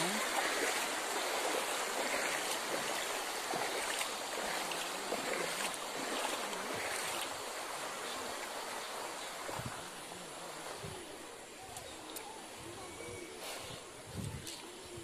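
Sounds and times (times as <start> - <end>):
floodwater flowing: 0.0 - 12.8.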